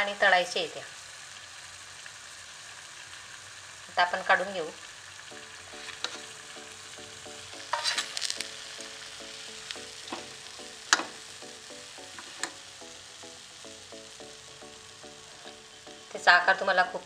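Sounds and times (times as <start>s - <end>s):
hot oil sizzling: 0.0s - 17.0s
metal spoon clinking on pan: 7.7s - 8.4s.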